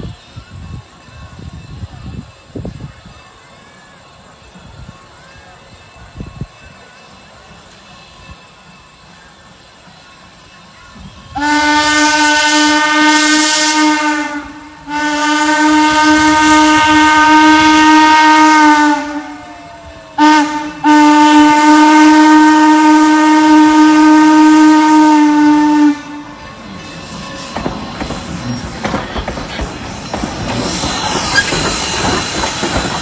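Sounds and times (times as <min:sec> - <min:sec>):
steam whistle blasts: 0:10.9 - 0:27.5.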